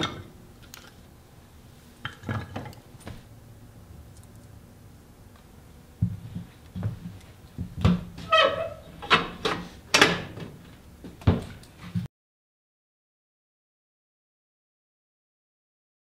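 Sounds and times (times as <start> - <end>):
squeaky metallic scrape: 8.2 - 9.0.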